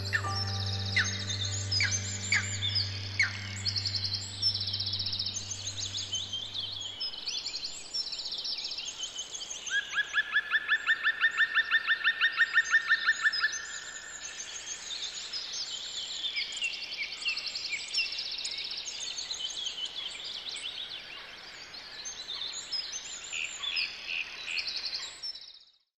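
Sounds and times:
songbirds trilling and chirping: 0.0s - 9.8s.

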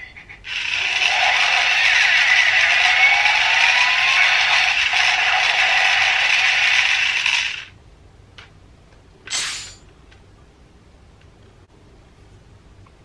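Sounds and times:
toy drill hissing whirr: 0.5s - 7.7s.

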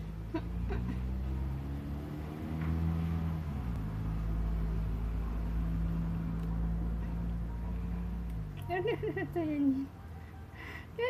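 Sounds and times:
low mechanical hum: 2.8s - 11.0s.

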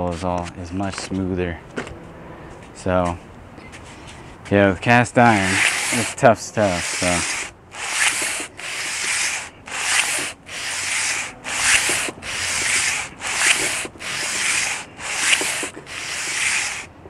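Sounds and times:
sandpaper rasping on metal: 5.2s - 17.0s.

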